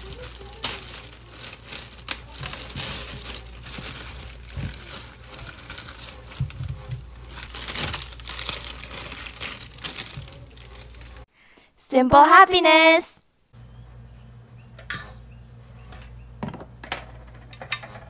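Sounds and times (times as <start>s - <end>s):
plastic bags crinkling: 0.0s - 11.3s.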